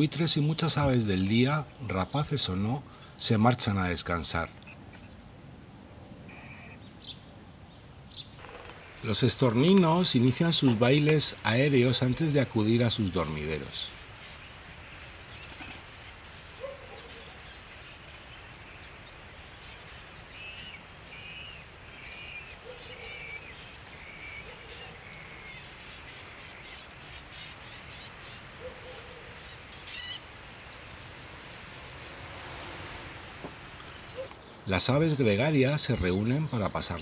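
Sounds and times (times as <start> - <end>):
sharp high bird calls: 6.3 - 7.2, 19.6 - 34.7
starlings calling: 6.3 - 37.0
steady hiss: 8.3 - 36.4.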